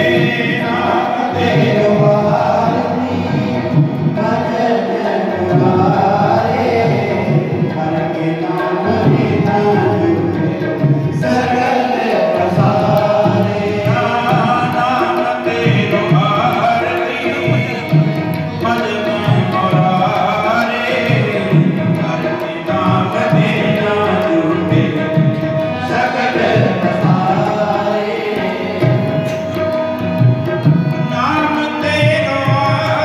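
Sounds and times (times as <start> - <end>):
men chanting a hymn: 0.0 - 29.6
tabla drums: 0.0 - 33.0.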